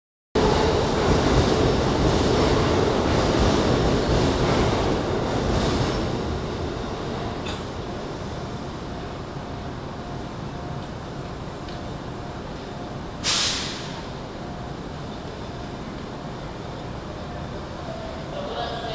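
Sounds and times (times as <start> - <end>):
train rumble and hiss: 0.4 - 18.9.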